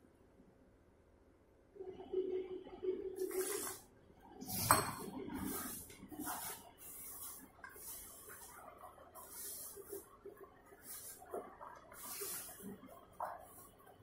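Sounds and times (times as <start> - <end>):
dough scraping against metal basin: 4.4 - 14.0
liquid pouring into flour: 4.5 - 14.0.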